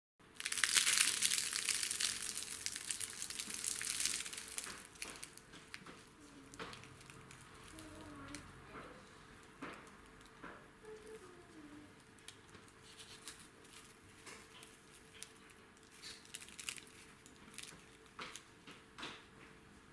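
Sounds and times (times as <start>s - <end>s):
pastry crackling torn by hand: 0.4s - 8.4s, 12.0s - 18.5s.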